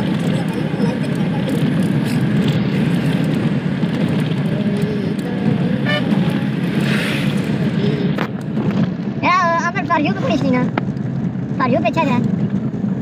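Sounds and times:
car engine and road rumble: 0:00.0 - 0:13.0
car horn toot: 0:05.8 - 0:06.3.

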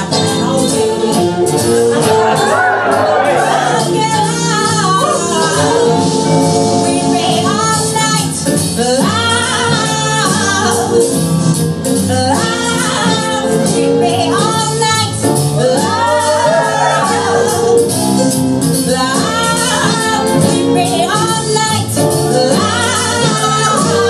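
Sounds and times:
person singing: 0:00.0 - 0:10.8, 0:12.1 - 0:17.9
instrumental accompaniment: 0:00.0 - 0:24.0.

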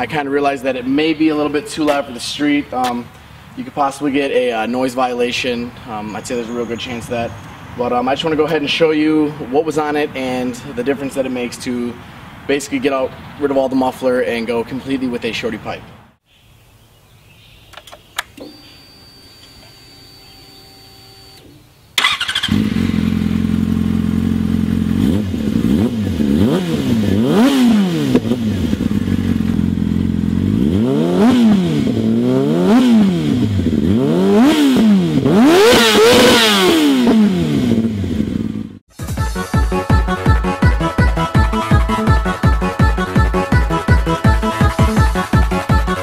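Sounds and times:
clicks: 0:17.7 - 0:18.8
motorcycle engine starting and revving: 0:19.5 - 0:38.9.

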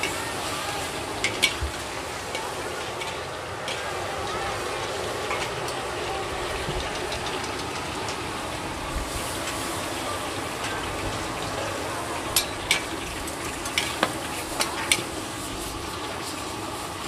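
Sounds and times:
metal spatulas clanking on wok: 0:00.0 - 0:08.3, 0:12.2 - 0:15.2
food sizzling in a wok: 0:00.0 - 0:17.0.

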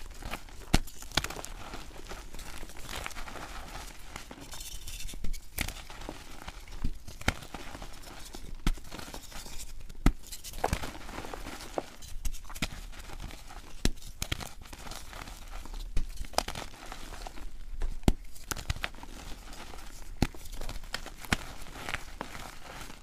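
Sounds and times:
chalk pieces snapping: 0:13.8 - 0:14.6.

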